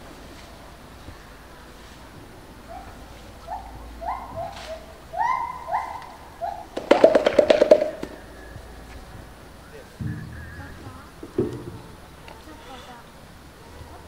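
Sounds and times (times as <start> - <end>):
gorilla hooting: 3.4 - 8.8.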